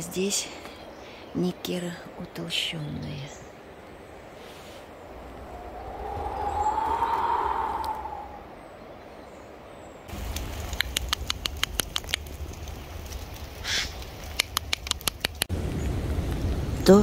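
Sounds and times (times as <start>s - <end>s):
faint forest background: 0.0s - 17.0s
sharp irregular ticks: 10.4s - 13.3s, 14.0s - 15.5s.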